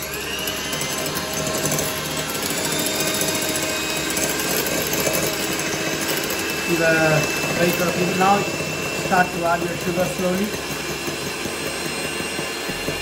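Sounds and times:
electric hand mixer whisking: 0:00.0 - 0:13.0.

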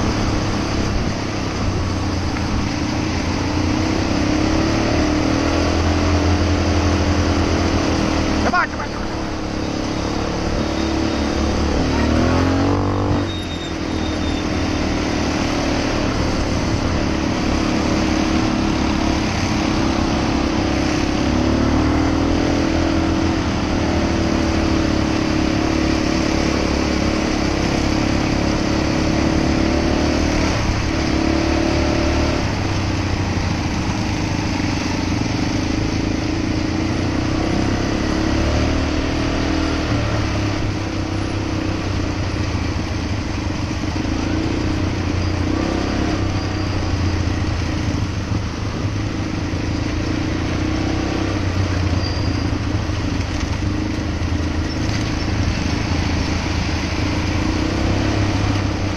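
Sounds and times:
atv engine running: 0:00.0 - 0:58.9.

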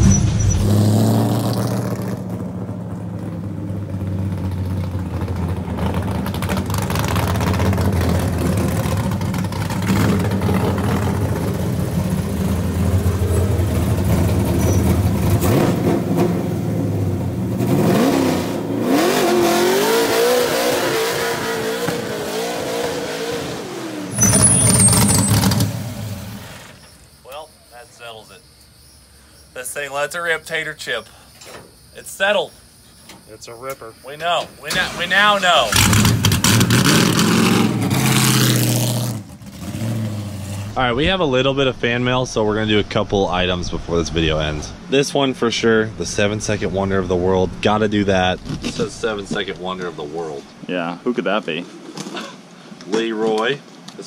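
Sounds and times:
race truck engine running: 0:00.0 - 0:20.8.

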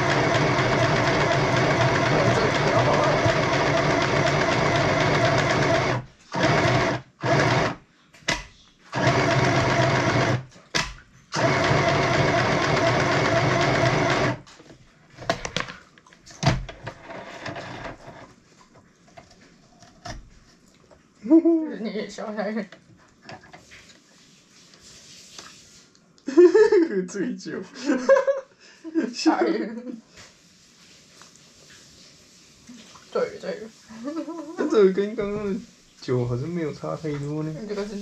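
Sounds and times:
sewing machine stitching: 0:00.0 - 0:07.8, 0:08.9 - 0:14.5, 0:16.8 - 0:18.3.

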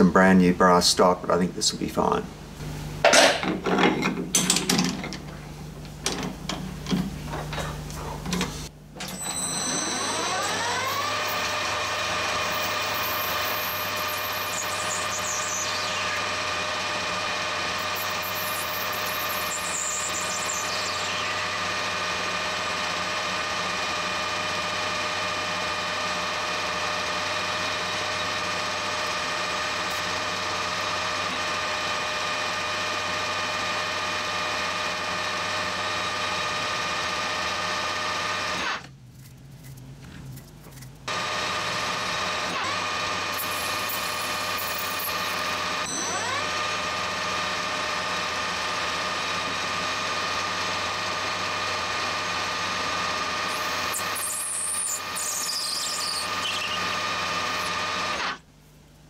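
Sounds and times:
metal lathe whining: 0:09.0 - 0:38.8, 0:41.1 - 0:58.4.

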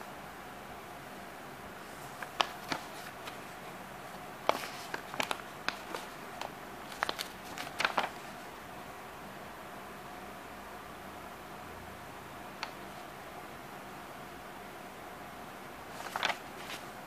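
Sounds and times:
paper crackling and pages flipping: 0:01.8 - 0:08.5, 0:12.6 - 0:13.0, 0:15.8 - 0:17.0.

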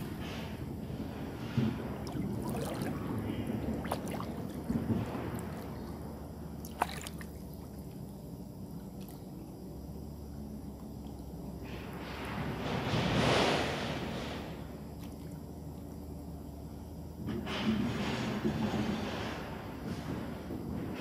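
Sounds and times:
water sloshing around wading person: 0:01.1 - 0:09.6.

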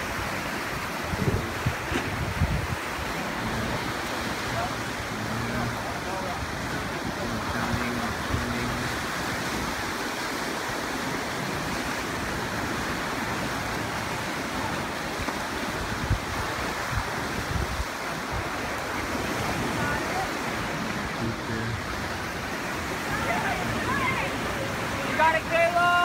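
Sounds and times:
ocean surf breaking on rocks: 0:00.0 - 0:26.0
wind thumps on microphone: 0:00.8 - 0:03.8, 0:15.2 - 0:18.6.

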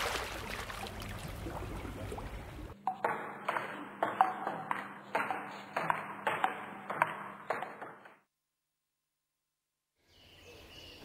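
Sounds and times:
ping-pong ball hitting paddles: 0:02.8 - 0:08.2.

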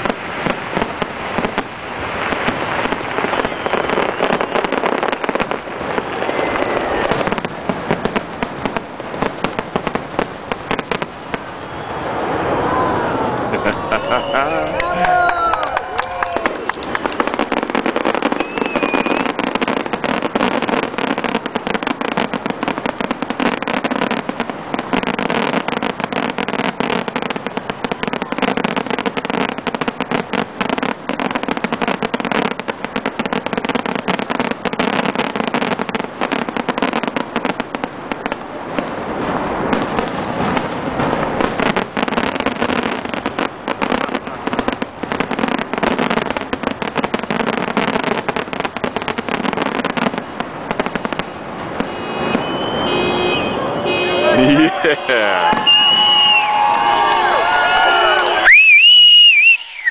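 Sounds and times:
firework shells bursting: 0:15.6 - 0:25.1.

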